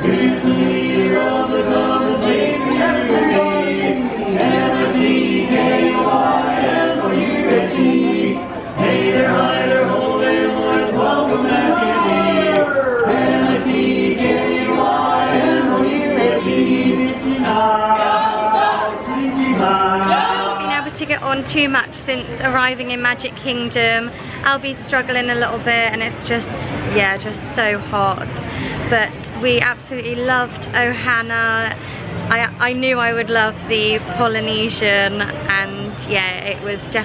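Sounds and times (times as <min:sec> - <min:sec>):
quartet singing in close harmony: 0:00.0 - 0:21.6.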